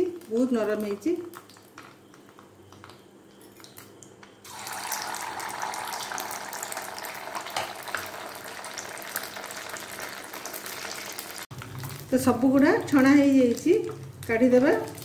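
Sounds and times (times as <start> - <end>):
dough sizzling in hot fat: 3.6 - 15.0.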